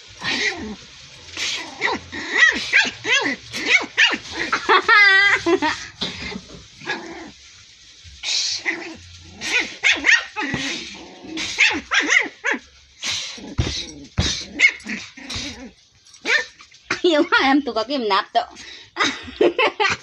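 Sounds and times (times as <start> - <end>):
puppy barking and yapping: 1.6 - 5.4, 9.0 - 12.7, 13.6 - 16.7.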